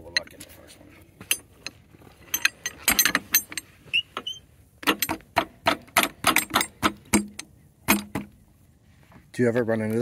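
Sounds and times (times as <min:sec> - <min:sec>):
metal clamp clanking: 0:01.2 - 0:03.7, 0:04.8 - 0:08.3.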